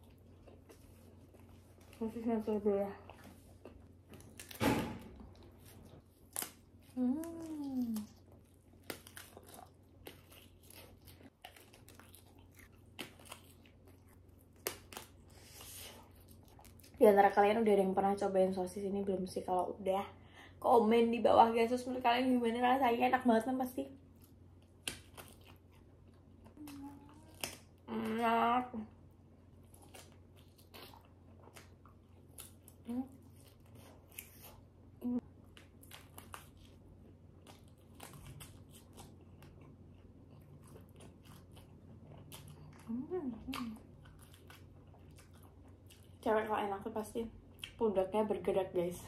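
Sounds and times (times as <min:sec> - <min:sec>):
biting and chewing sausage: 0:03.1 - 0:17.0, 0:24.1 - 0:27.9, 0:29.5 - 0:46.3
person humming: 0:07.0 - 0:08.0, 0:26.6 - 0:27.3
chewing mouth sounds: 0:35.4 - 0:46.2.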